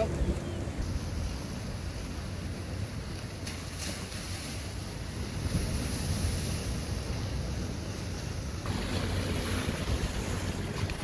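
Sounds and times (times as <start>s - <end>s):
sea waves splashing against rocks: 3.1s - 11.0s.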